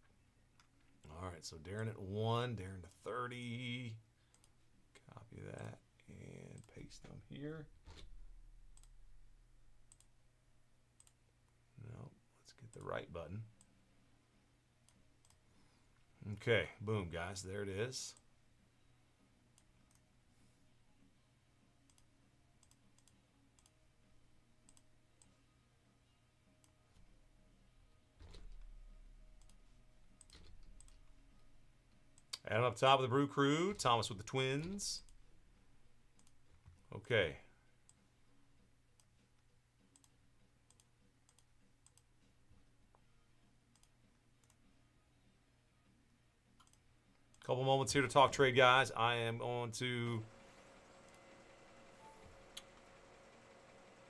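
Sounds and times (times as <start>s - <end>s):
low room hum: 0.0s - 54.0s
computer mouse clicks: 8.7s - 9.0s, 9.9s - 10.1s, 11.0s - 11.2s, 21.9s - 23.8s, 24.6s - 25.4s, 29.4s - 29.6s, 30.2s - 31.1s, 36.2s - 36.4s, 39.9s - 42.1s, 43.7s - 44.6s, 46.6s - 47.4s, 51.0s - 51.4s.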